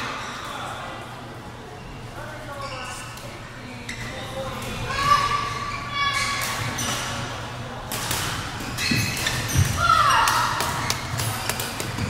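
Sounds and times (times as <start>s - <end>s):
sneaker squeak on court floor: 8.6s - 9.8s
racket hitting shuttlecock: 9.0s - 12.0s.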